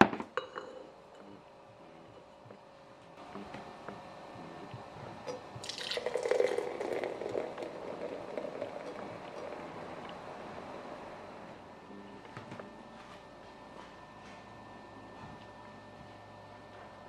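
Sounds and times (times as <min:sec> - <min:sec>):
beer pouring into a glass: 0:05.3 - 0:11.6.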